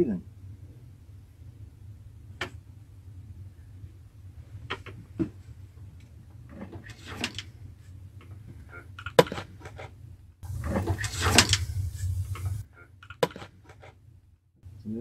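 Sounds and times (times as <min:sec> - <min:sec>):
rustle: 0:03.7 - 0:12.6.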